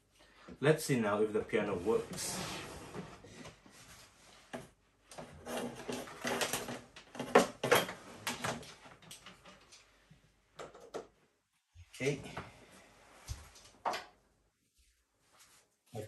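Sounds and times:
knocks and rattles of handling: 0:04.4 - 0:11.2.

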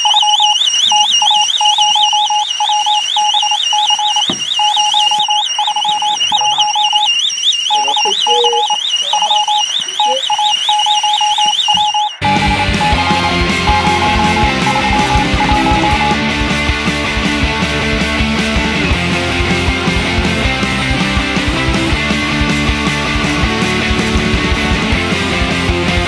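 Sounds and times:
high warbling alarm tone: 0:00.0 - 0:16.2
low pulsing beep: 0:00.0 - 0:16.2.

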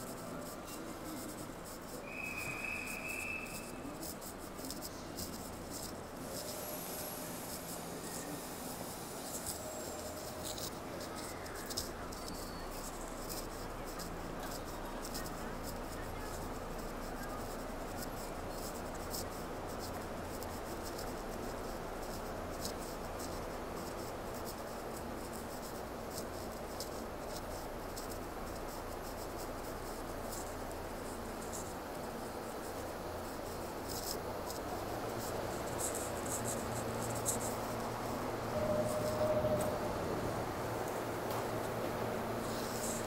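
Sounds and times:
steady hiss: 0:00.0 - 0:43.0
train low hum: 0:06.2 - 0:13.3, 0:34.6 - 0:42.8
short steady tone: 0:38.5 - 0:39.9.

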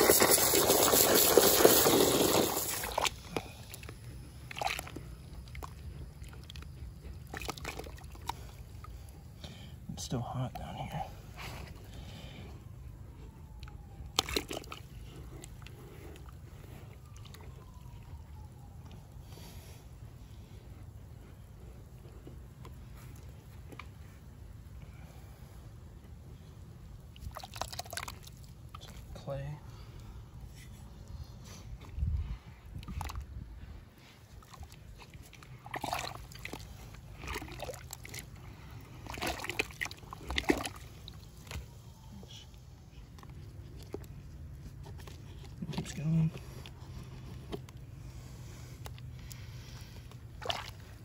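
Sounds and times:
hand splashing in muddy water: 0:34.4 - 0:38.3, 0:39.0 - 0:41.6, 0:50.3 - 0:51.0.

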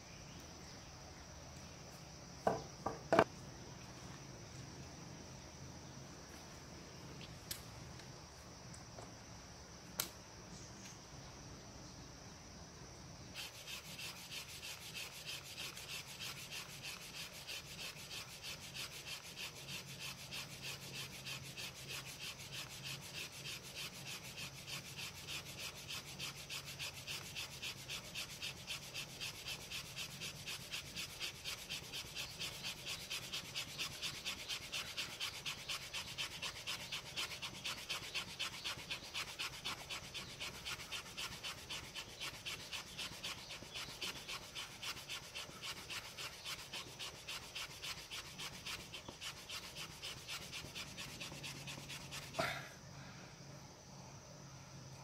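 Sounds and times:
blade scraping wood: 0:13.4 - 0:52.4.

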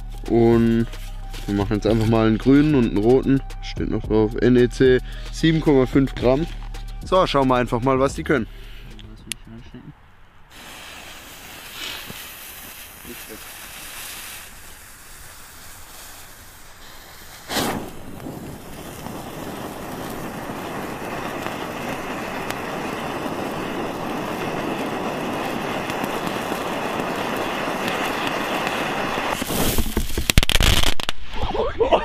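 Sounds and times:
hissing flame and sparks: 0:00.0 - 0:03.3, 0:10.5 - 0:31.4
smoke fountain igniting whoosh: 0:00.0 - 0:09.1, 0:10.5 - 0:31.4
crackling: 0:00.0 - 0:31.5.

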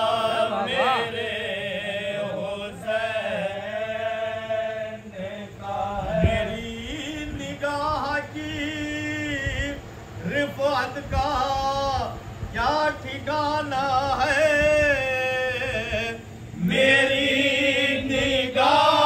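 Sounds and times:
men chanting an elegy: 0:00.0 - 0:07.3.

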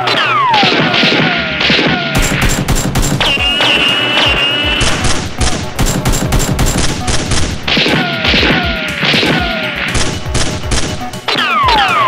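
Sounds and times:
rapid gunfire: 0:00.0 - 0:12.0
descending whistles: 0:03.3 - 0:04.8.

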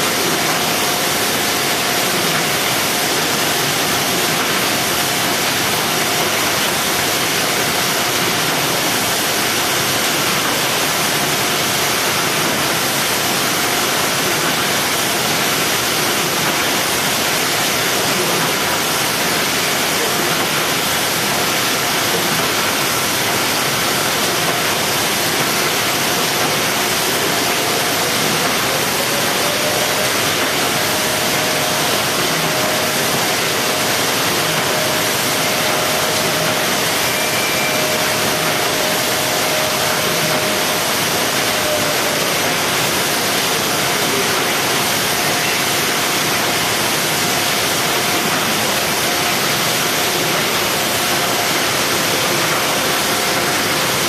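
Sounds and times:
conveyor machine noise: 0:00.0 - 0:54.0
faint machine whine: 0:26.4 - 0:42.9.

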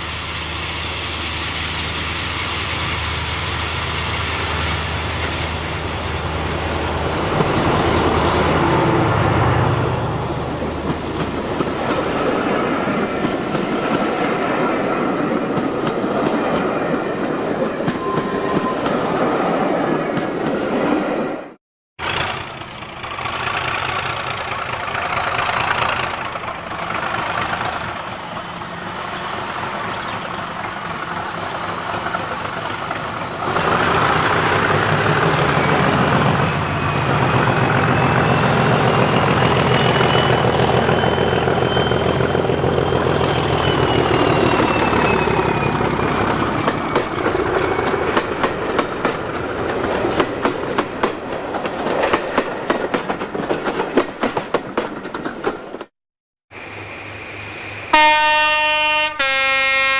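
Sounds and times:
diesel locomotive engine: 0:00.0 - 0:55.9, 0:56.5 - 0:59.9
train wheels clickety-clack: 0:07.2 - 0:14.7, 0:15.3 - 0:16.9, 0:22.0 - 0:41.8, 0:42.9 - 0:55.9
high whistle: 0:17.9 - 0:19.0, 0:35.2 - 0:45.9.

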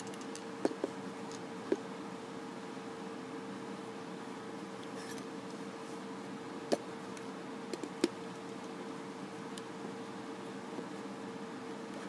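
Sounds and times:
plastic bricks clicking: 0:00.0 - 0:01.4
steady low hum: 0:00.0 - 0:12.0.

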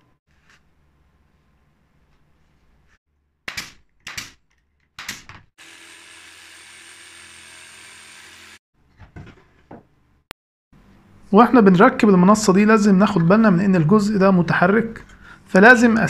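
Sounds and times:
jigsaw cutting board: 0:05.6 - 0:08.6.

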